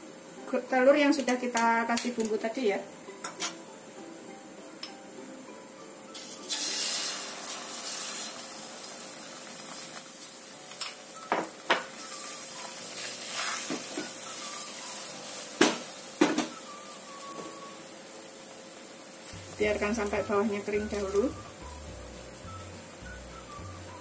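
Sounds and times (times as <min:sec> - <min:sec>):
egg sizzling in hot oil: 0:06.0 - 0:24.0.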